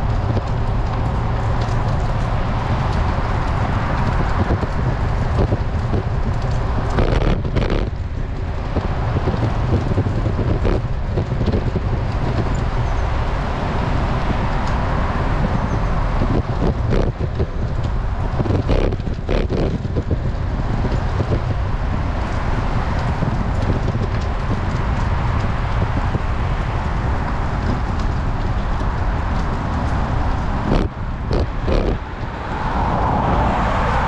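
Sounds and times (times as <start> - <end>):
road noise: 0.0 - 34.0
wind rushing over microphone: 0.0 - 34.0
knocks and rattles: 16.2 - 21.4.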